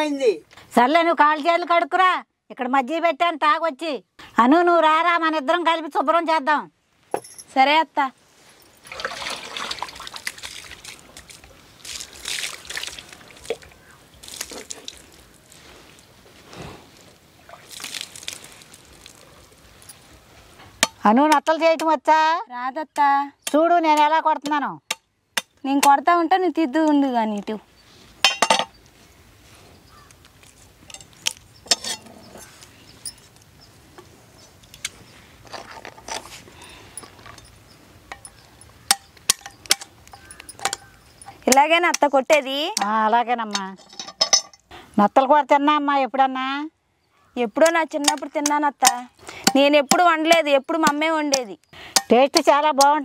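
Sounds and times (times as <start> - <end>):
water splashing and trickling: 8.5 - 16.2, 17.0 - 20.3.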